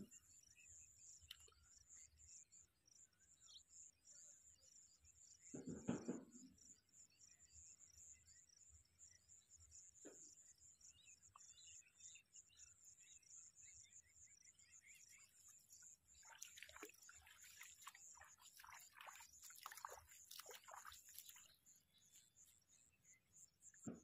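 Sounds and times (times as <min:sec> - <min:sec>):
feet wading in shallow water: 0:15.0 - 0:22.4.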